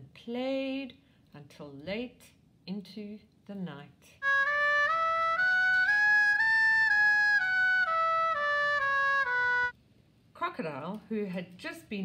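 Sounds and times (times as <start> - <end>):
trumpet playing scale: 4.2 - 9.7.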